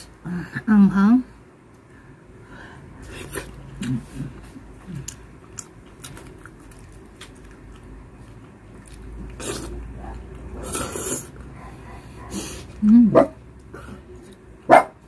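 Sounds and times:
loud wet eating noises: 0:03.0 - 0:14.6.

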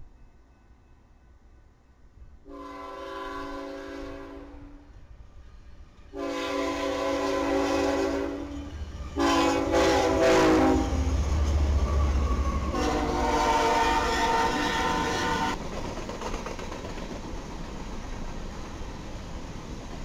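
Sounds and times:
locomotive air horn blasts: 0:02.4 - 0:04.8, 0:06.1 - 0:08.6, 0:09.2 - 0:11.0, 0:12.7 - 0:15.6
locomotive engine and cars rumbling: 0:08.2 - 0:15.9.

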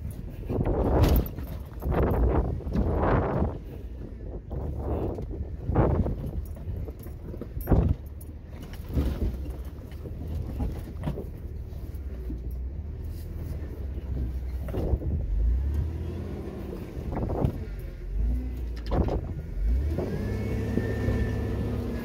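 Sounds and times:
jangling rattle: 0:00.0 - 0:03.0, 0:05.9 - 0:12.7
engine running low and steady: 0:00.0 - 0:22.0
sharp clunks over rocks: 0:00.5 - 0:03.5, 0:04.5 - 0:11.6.

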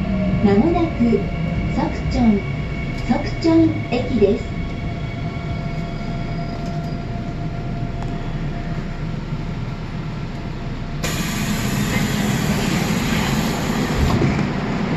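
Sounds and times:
train running noise: 0:00.0 - 0:14.9
loud hiss: 0:11.0 - 0:14.0.

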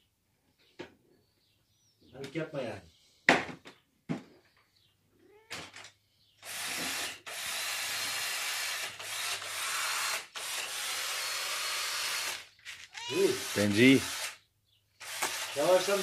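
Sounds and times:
cat meowing: 0:05.2 - 0:05.6, 0:12.9 - 0:13.5.

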